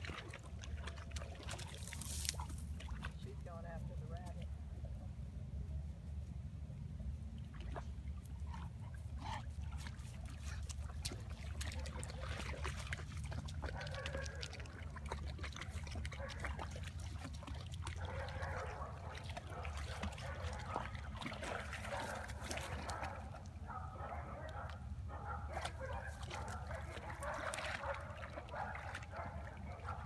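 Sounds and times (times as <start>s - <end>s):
steady low rumble: 3.2s - 11.0s
dog sounds: 10.4s - 30.0s.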